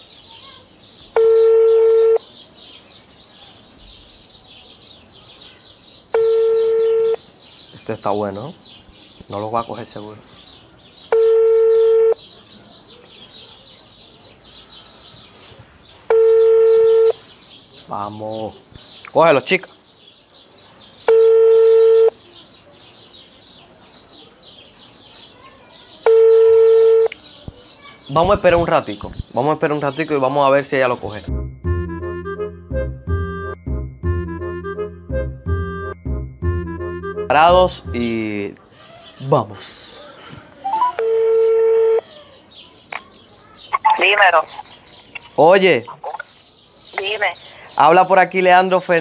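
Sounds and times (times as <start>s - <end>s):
telephone ringback tone beep: 1.2s - 2.2s, 6.1s - 7.2s, 11.1s - 12.2s, 16.1s - 17.2s, 21.1s - 22.2s, 26.0s - 27.1s, 40.6s - 42.0s
faint short chirps: 40.6s - 41.1s.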